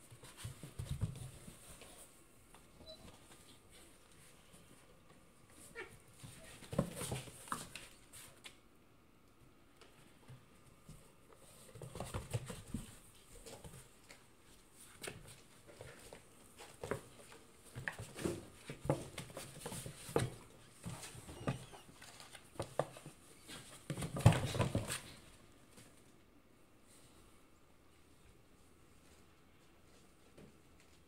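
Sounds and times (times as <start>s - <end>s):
cats scratching cardboard box: 14.8s - 25.3s.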